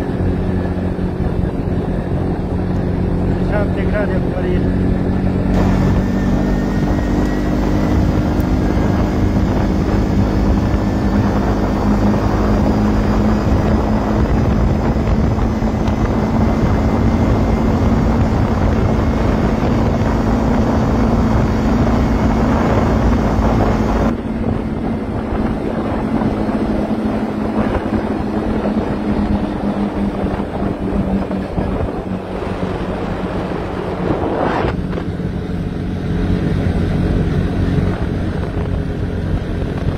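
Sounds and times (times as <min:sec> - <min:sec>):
atv engine running: 0:00.0 - 0:39.9
wind buffeting microphone: 0:00.0 - 0:39.9.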